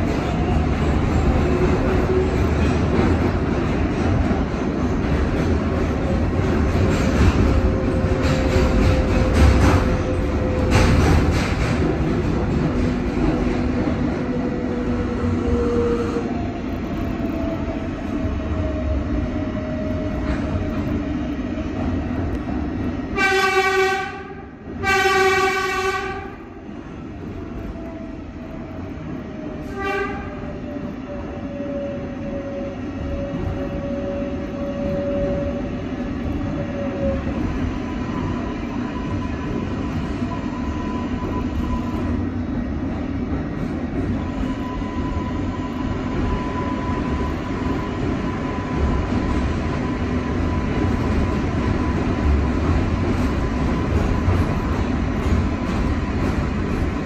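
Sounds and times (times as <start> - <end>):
subway train rumble: 0.0 - 57.0
train horn blasts: 23.2 - 26.4, 29.7 - 30.5.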